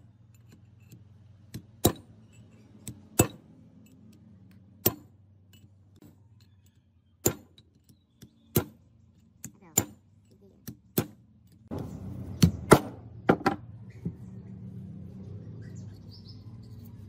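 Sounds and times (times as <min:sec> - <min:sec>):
metal tools clinking: 0:02.2 - 0:02.9.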